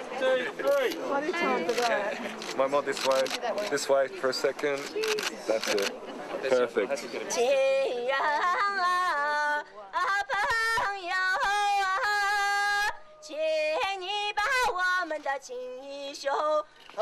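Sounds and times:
woman singing unaccompanied: 7.4s - 16.7s.

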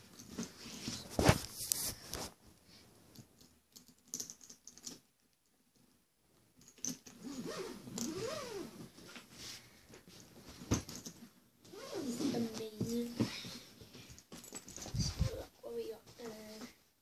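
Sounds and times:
suitcase handling clicks and knocks: 10.1s - 11.4s, 14.1s - 15.0s.

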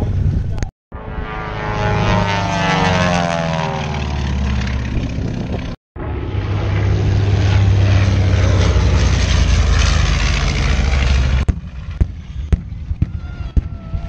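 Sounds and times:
propeller airplane engine drone: 0.0s - 14.0s
pyrotechnic explosions: 4.3s - 14.0s.

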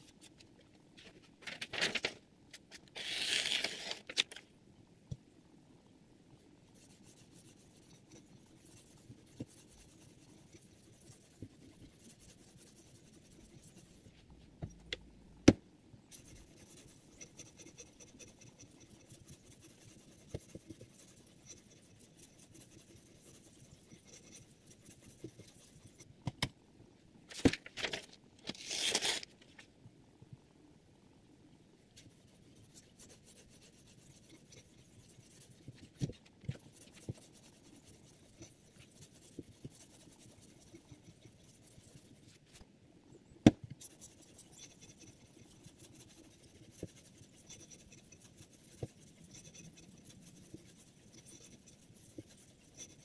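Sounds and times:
knife slicing paper: 3.0s - 4.2s, 28.5s - 29.3s.

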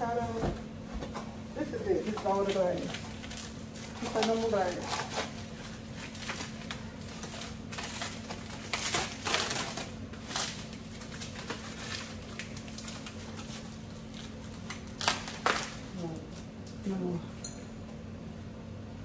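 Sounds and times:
steady low hum: 0.0s - 19.0s
wrapping rustling: 1.6s - 16.5s
glassware clinks and knocks: 17.4s - 17.8s.

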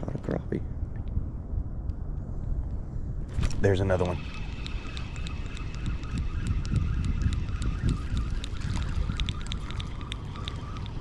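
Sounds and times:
wind rumble on microphone: 0.0s - 11.0s
faint wavering whine: 0.6s - 11.0s
spinning reel cranking: 3.4s - 10.9s
light ticking: 3.4s - 11.0s.

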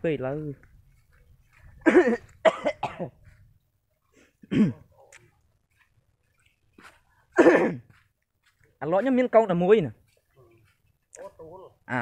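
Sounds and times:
man speaking: 0.0s - 0.6s, 8.8s - 12.0s.

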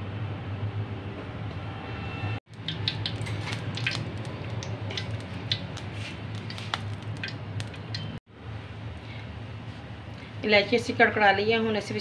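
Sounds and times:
cardamom pods crackling in ghee: 2.5s - 8.2s.

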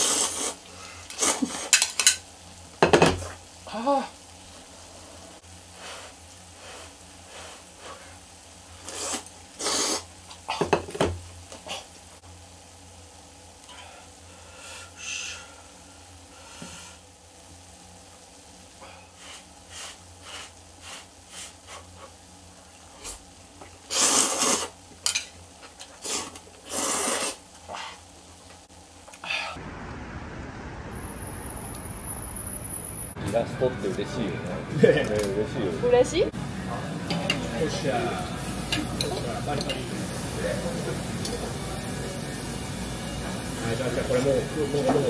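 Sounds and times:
loud noodle slurps: 0.0s - 1.7s, 8.8s - 10.1s, 23.9s - 24.8s, 26.0s - 27.4s
food sizzling in a pan: 0.0s - 30.2s, 35.9s - 45.0s.

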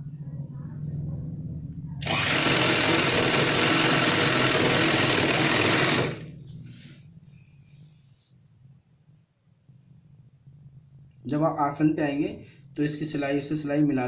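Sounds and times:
low hum: 0.0s - 12.8s
sewing machine stitching: 2.0s - 6.3s.

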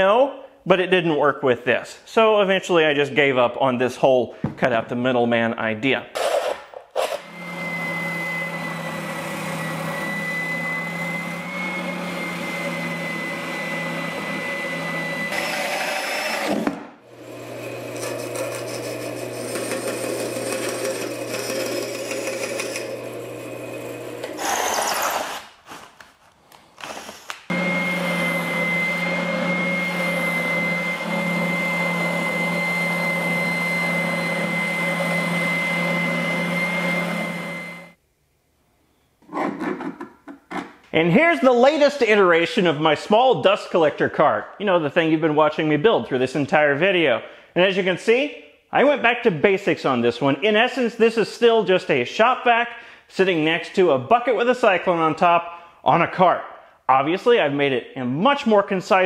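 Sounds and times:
spindle sander whining: 6.2s - 25.1s, 26.9s - 38.0s
band saw cutting plywood: 6.2s - 25.5s, 26.9s - 37.9s.

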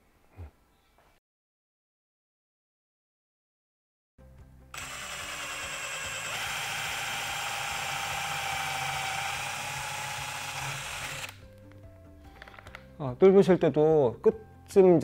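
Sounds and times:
cordless drill boring into wood: 4.7s - 11.4s.

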